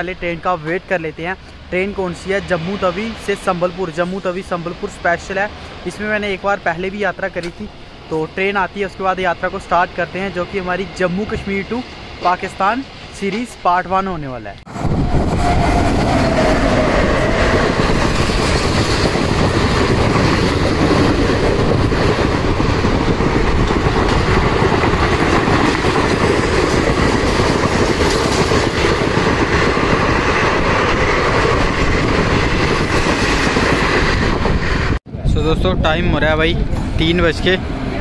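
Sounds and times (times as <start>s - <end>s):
train wheels running on rails: 0.0s - 35.0s
locomotive whine: 14.6s - 35.0s.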